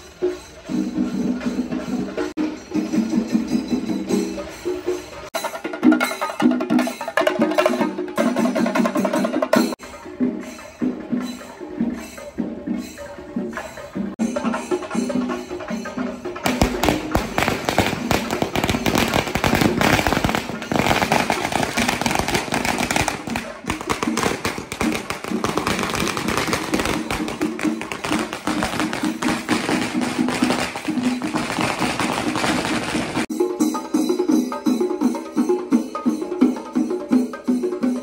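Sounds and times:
rapid drumming: 13.4 - 38.0.

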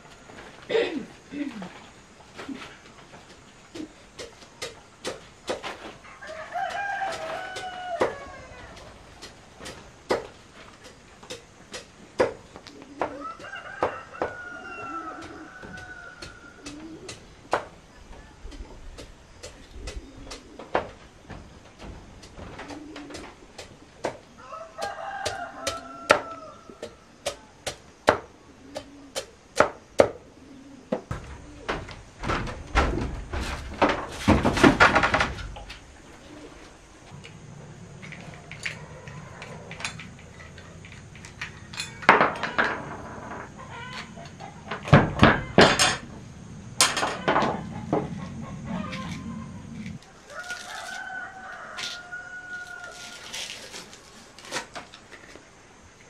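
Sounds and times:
rooster crowing: 6.0 - 9.0, 12.9 - 17.1, 24.4 - 27.1, 37.4 - 54.0.

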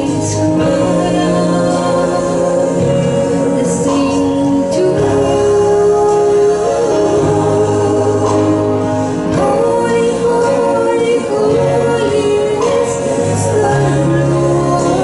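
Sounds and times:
instrumental accompaniment: 0.0 - 15.0
woman singing a hymn: 0.0 - 15.0.

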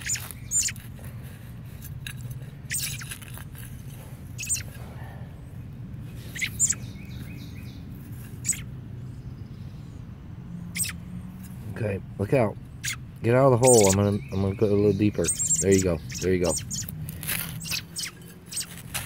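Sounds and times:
short high bird chirps: 0.0 - 0.8, 2.7 - 3.1, 4.4 - 4.7, 6.3 - 7.8, 8.4 - 8.7, 13.6 - 16.9, 17.6 - 18.8.

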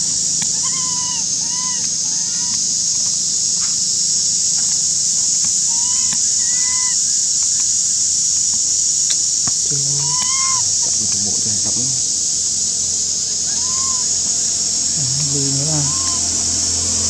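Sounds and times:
insects droning: 0.0 - 17.0
infant monkey cooing: 0.4 - 2.7, 5.6 - 7.0, 9.5 - 17.0.

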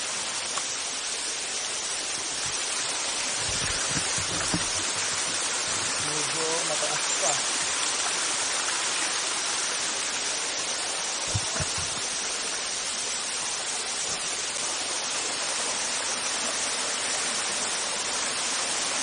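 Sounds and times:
waterfall and stream over rocks: 0.0 - 19.0
low thumps: 3.3 - 6.0, 11.3 - 12.1.

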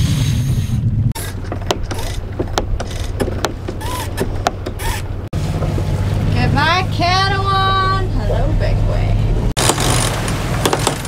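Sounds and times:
wind noise on microphone: 0.0 - 5.3
winch ratcheting clicks: 1.2 - 5.1.

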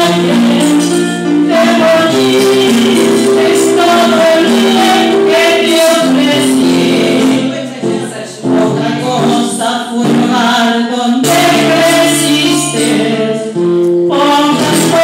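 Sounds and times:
woman singing into microphone: 0.0 - 15.0.

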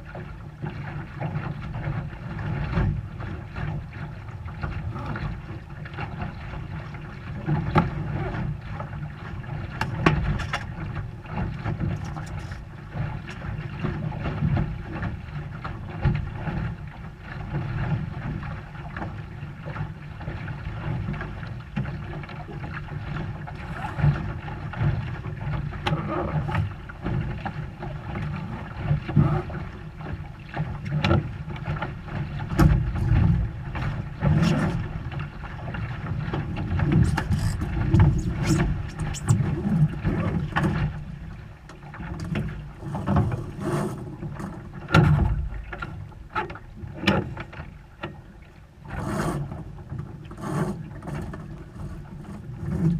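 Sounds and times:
water against hull: 0.0 - 52.9
wind rumble on microphone: 0.0 - 52.9
sharp knocks of boat gear: 32.5 - 34.9, 42.1 - 48.2.

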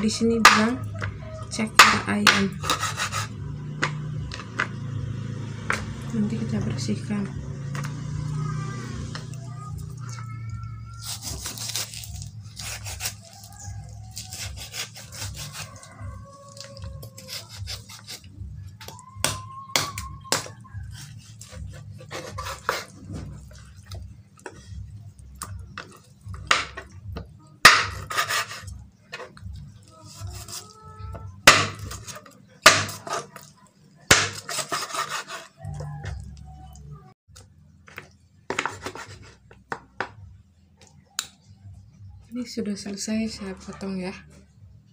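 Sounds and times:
knife chopping on wooden board: 0.4 - 1.1, 1.8 - 4.8, 19.2 - 23.4, 27.6 - 29.3, 31.4 - 33.4, 34.1 - 35.5, 38.5 - 40.2.

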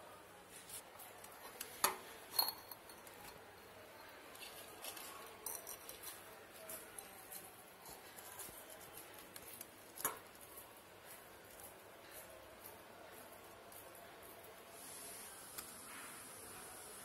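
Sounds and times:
metal plate clinking: 2.3 - 3.4.

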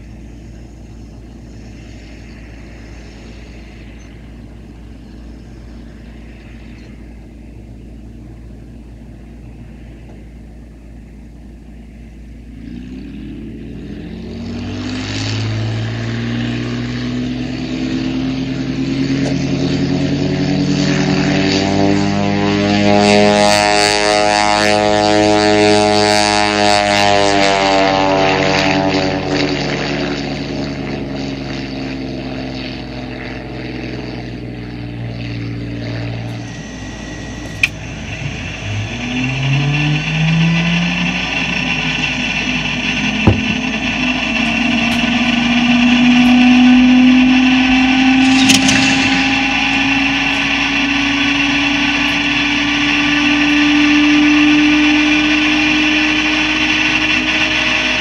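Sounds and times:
aircraft engine at takeoff power: 0.0 - 58.0
rising starter whine: 0.0 - 58.0.

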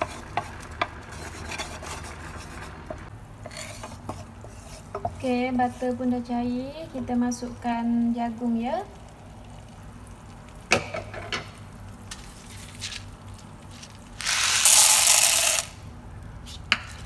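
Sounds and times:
popcorn kernels poured into pan: 14.2 - 15.7.

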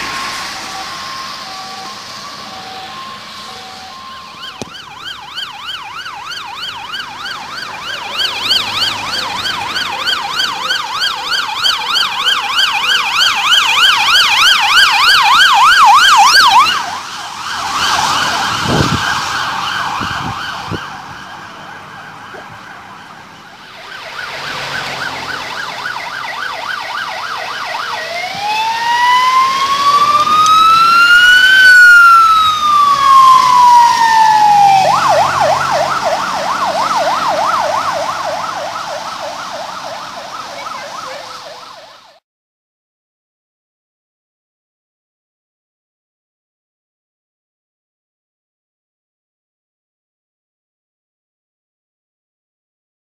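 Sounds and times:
ambulance warbling siren: 0.0 - 42.2
faint fast siren: 0.0 - 42.2
slow wailing siren: 0.0 - 42.2.

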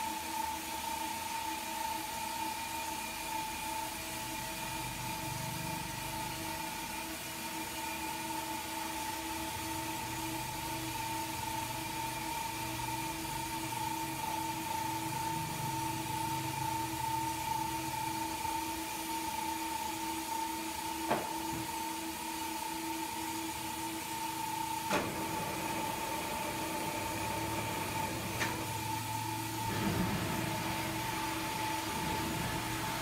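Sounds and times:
steady machine hum: 8.5 - 33.0.

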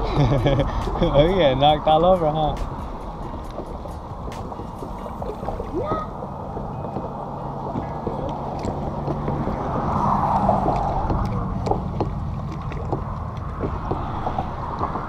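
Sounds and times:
wind on microphone: 0.0 - 15.0
water lapping against boat hull: 3.3 - 15.0.

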